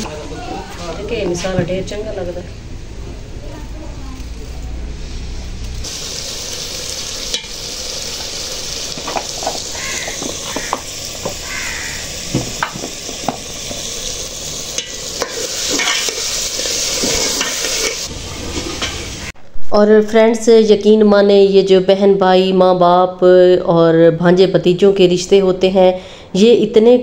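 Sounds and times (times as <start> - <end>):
curry sizzling in a pot: 0.0 - 19.4
steel utensils clinking: 7.2 - 11.5, 12.5 - 19.1.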